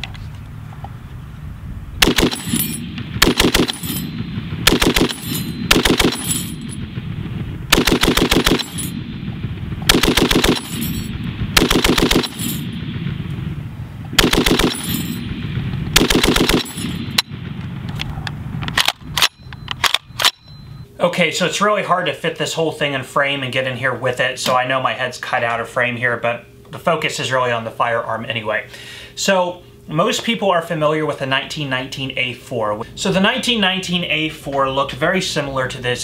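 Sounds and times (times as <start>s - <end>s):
machine gun firing bursts: 2.0s - 7.0s, 7.7s - 9.0s, 9.8s - 13.2s, 14.2s - 17.4s.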